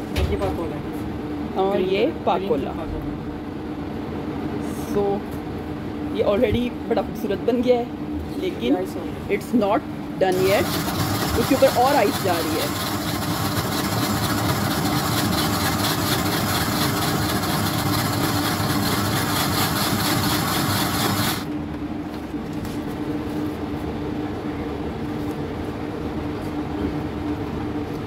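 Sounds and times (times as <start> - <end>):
steady hum: 0.0 - 28.0
electric ice shaver running: 10.3 - 21.5.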